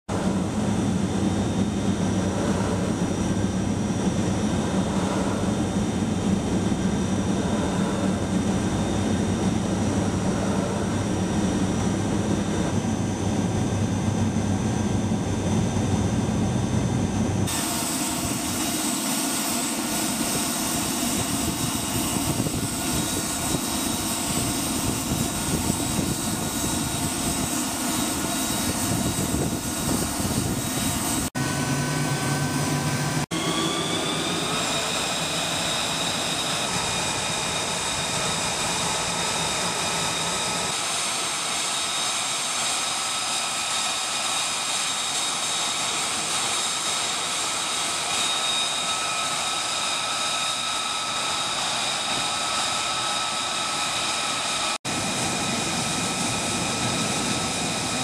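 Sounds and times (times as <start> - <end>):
jet engine roar with turbine whine: 0.0 - 58.0.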